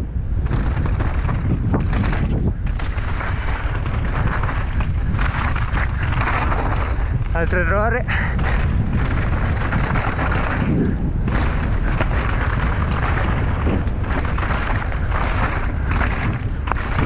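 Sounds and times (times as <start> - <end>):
bike rattling: 0.0 - 17.0
wind rumble on microphone: 0.0 - 17.0
tyres rolling over gravel: 0.4 - 17.0.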